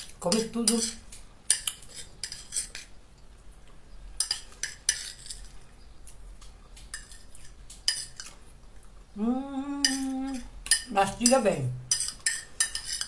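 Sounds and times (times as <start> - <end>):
fork scraping on a plate: 0.3 - 2.9, 4.2 - 5.6, 6.9 - 8.4, 11.9 - 13.0
person humming: 9.2 - 10.5.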